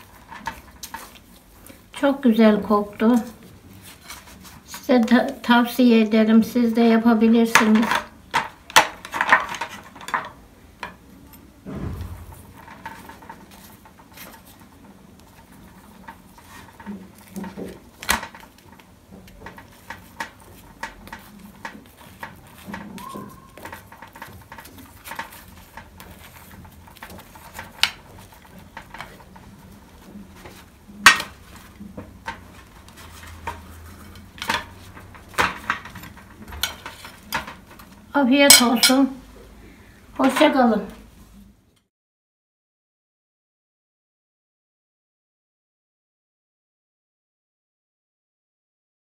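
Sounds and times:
metal spoon clinking on ceramic: 38.5 - 39.0.

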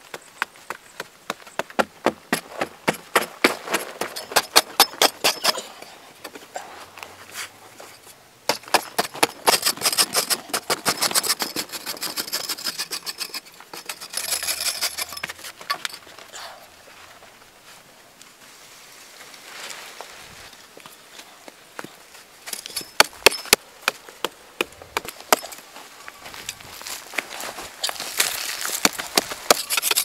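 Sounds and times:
digging tool striking hard earth: 2.1 - 5.9, 8.5 - 15.9, 22.5 - 24.0, 27.8 - 30.0.

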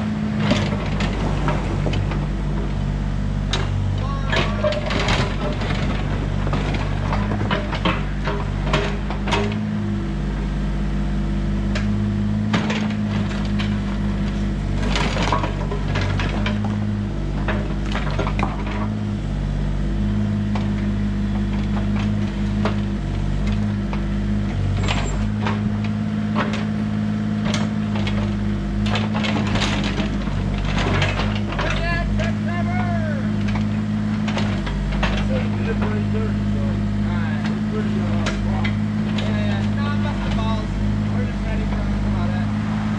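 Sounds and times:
excavator diesel engine running: 0.0 - 42.9.

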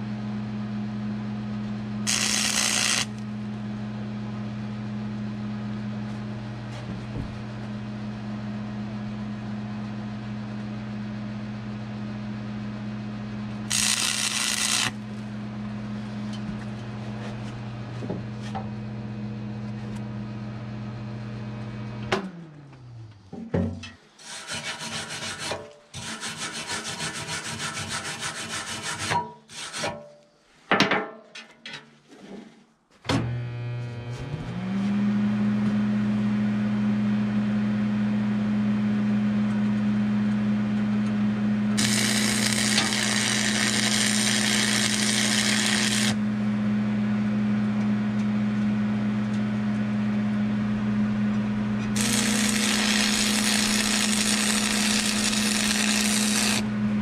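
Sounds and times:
welder electrical hum: 0.0 - 27.2, 33.0 - 57.0
welding arc crackling: 2.1 - 3.3, 13.7 - 15.1, 41.8 - 46.2, 52.0 - 56.6
scratchy rubbing on steel: 24.2 - 29.9.

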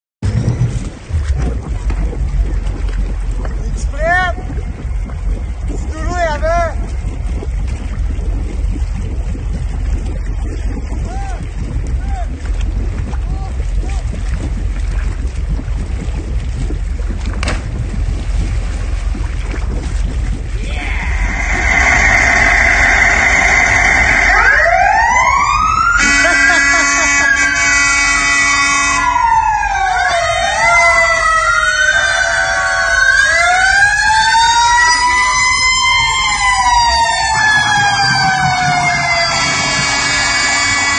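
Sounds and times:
wind on microphone: 0.2 - 27.4, 34.1 - 40.9
boat engine low rumble: 0.2 - 40.9
distant splash into water: 5.5 - 20.1
fire truck siren wailing: 20.7 - 40.9.

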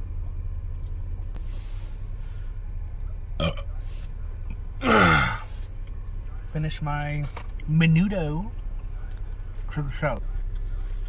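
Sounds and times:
man burping loudly: 3.4 - 3.7, 4.8 - 5.5.

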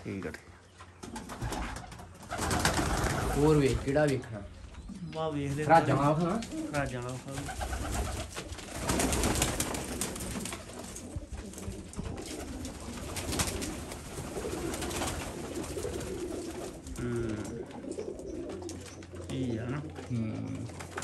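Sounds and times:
pigeons cooing: 0.0 - 21.0
wing flaps and feather rustling: 1.0 - 21.0.

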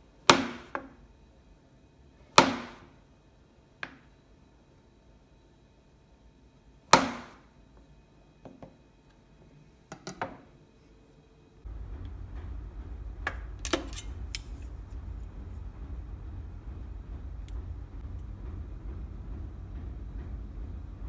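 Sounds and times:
steady low rumble: 11.6 - 21.0.

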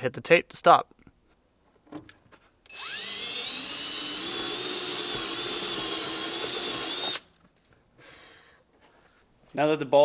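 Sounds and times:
power drill cutting through steel: 2.7 - 7.3.

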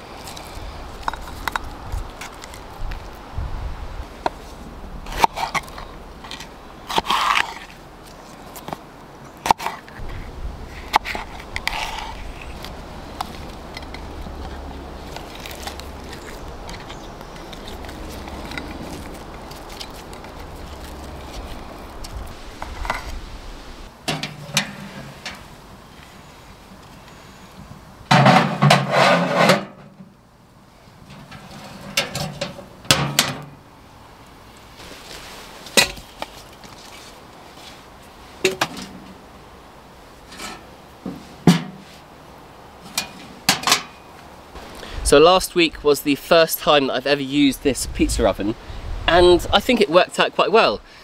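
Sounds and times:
handling noises: 4.0 - 30.2, 30.8 - 33.6, 34.5 - 39.5, 40.1 - 44.8.

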